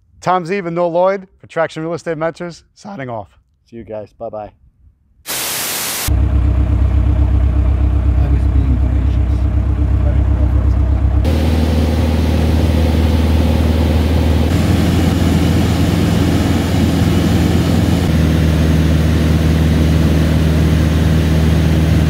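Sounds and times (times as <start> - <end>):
light aircraft engine and propeller: 6.1 - 22.0.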